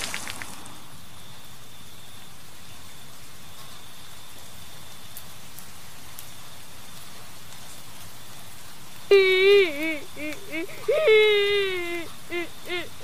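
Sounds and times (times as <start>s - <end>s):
steady rain hiss: 0.0s - 13.0s
faint ticks: 5.1s - 8.7s.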